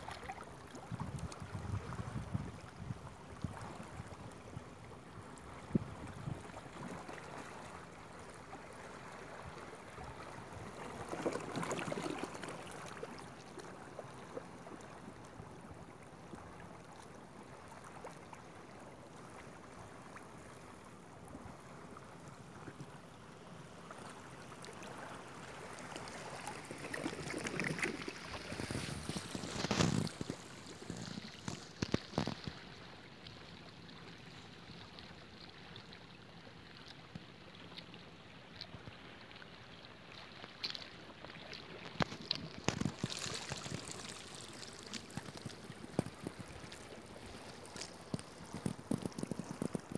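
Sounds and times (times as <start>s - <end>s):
waves splashing against rocks: 25.4s - 32.8s, 40.7s - 49.9s.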